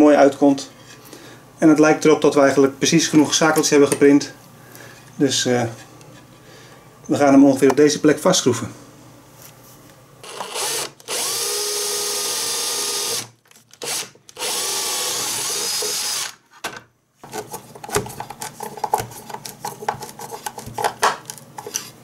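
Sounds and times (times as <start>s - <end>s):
cordless drill whine: 10.2s - 16.4s.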